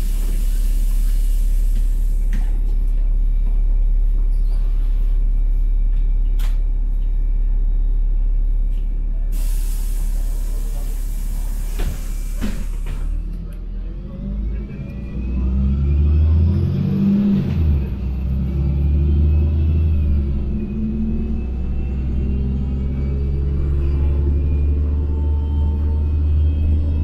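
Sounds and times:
bus engine low rumble: 0.0s - 27.0s
compressed air hissing: 9.4s - 12.8s.

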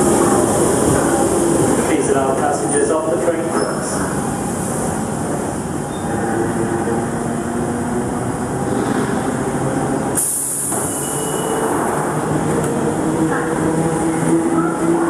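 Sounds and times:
train rumble: 0.0s - 15.0s
squealing train wheels: 3.4s - 4.2s, 5.9s - 6.4s, 10.1s - 11.9s
loud hiss: 10.2s - 11.1s.

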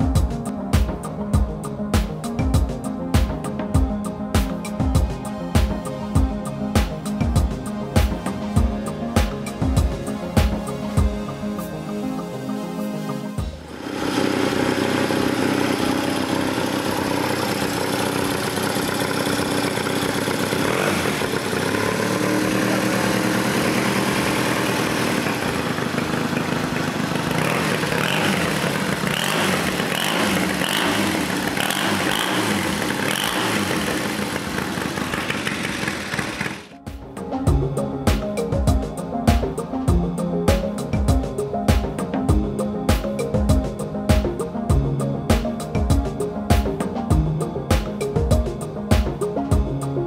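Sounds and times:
motorcycle engine idling: 13.4s - 36.7s.

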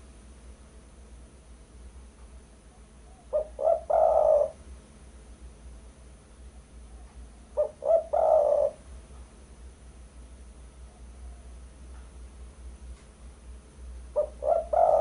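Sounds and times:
dove cooing: 2.7s - 4.6s, 6.8s - 8.9s, 14.1s - 15.0s.

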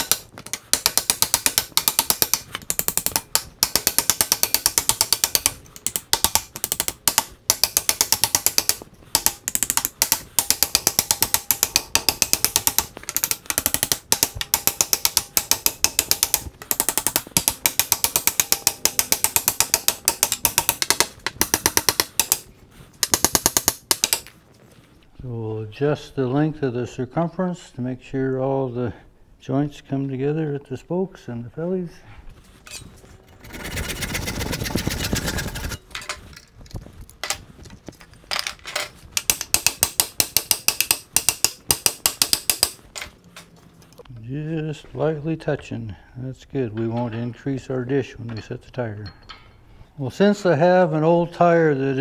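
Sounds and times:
hammer tapping wooden wheel: 0.0s - 24.3s, 39.1s - 43.0s.

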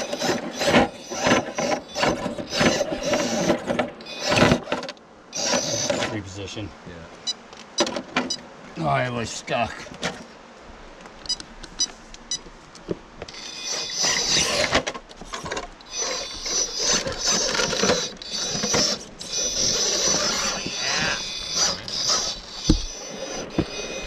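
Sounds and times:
electric motor whining: 0.0s - 6.2s, 13.3s - 24.0s
tires scraping on stone: 0.0s - 6.2s, 13.2s - 24.0s.

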